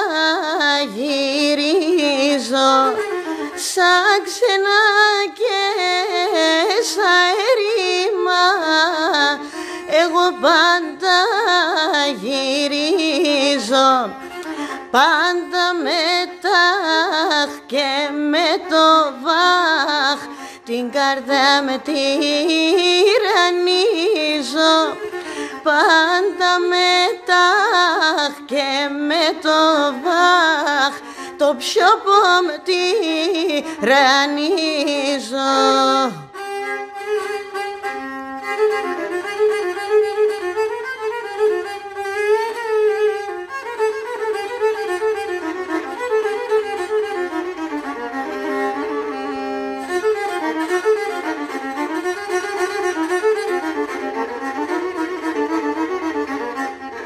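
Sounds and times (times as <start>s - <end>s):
woman singing: 0.0s - 36.4s
bowed lyra melody: 0.0s - 57.0s.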